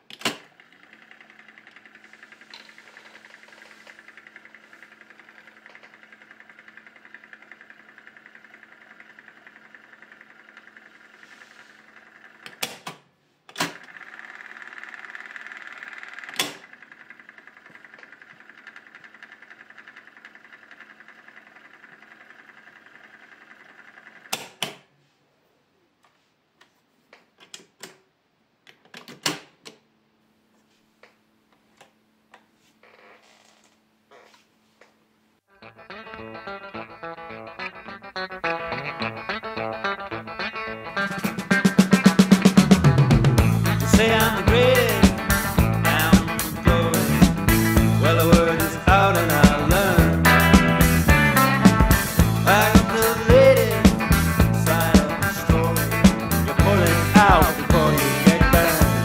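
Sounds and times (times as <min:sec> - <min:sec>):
cassette tape transport whirring: 0:00.2 - 0:12.8, 0:40.7 - 0:59.0.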